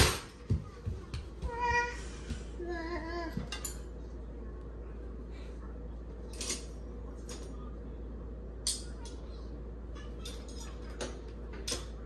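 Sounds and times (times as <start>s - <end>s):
silverware clinking: 3.5s - 3.9s, 6.3s - 7.6s, 8.6s - 9.2s, 10.0s - 12.0s.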